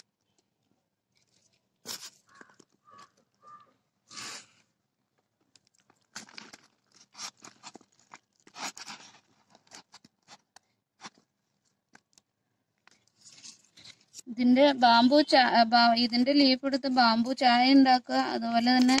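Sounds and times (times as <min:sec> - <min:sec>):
hands crunching potting soil: 0:05.2 - 0:12.3.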